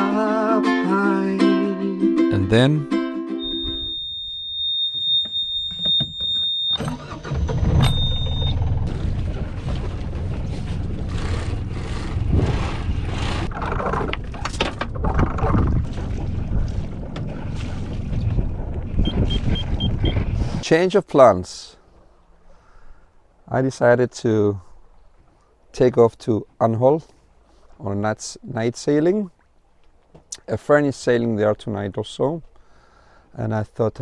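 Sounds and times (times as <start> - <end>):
high-pitched beep: 3.4 - 7.2, 7.8 - 8.6
boat engine rumbling: 3.4 - 22.7.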